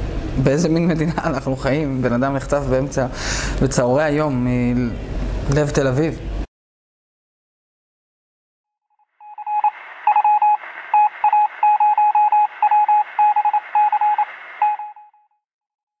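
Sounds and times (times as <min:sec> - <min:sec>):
morse code beeping: 0:09.2 - 0:15.2
radio static hiss: 0:09.3 - 0:14.9.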